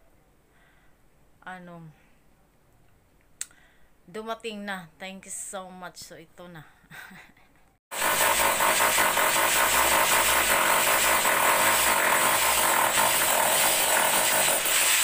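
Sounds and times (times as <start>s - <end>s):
power drill boring into wall: 7.9s - 15.0s.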